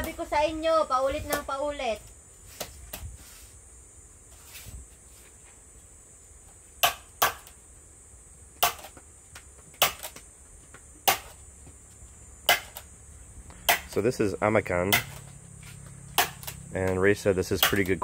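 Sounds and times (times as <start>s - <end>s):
hand tool striking wood: 6.8s - 7.6s, 8.6s - 9.0s, 9.7s - 10.2s, 11.0s - 11.4s, 12.4s - 12.9s, 13.5s - 14.0s, 14.7s - 15.3s, 16.1s - 18.0s.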